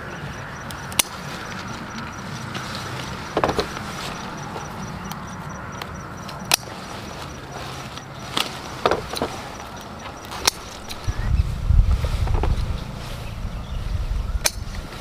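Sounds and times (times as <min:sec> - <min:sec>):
steady low rumble: 0:00.0 - 0:15.0
scissors snipping stems: 0:00.2 - 0:11.2.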